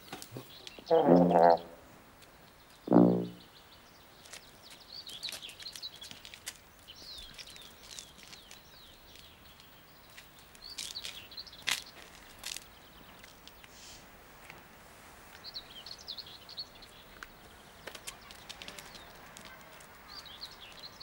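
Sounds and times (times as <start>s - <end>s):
small birds chirping: 0.0s - 1.7s, 2.3s - 13.8s, 15.3s - 21.0s
short low-pitched note: 2.9s - 3.4s.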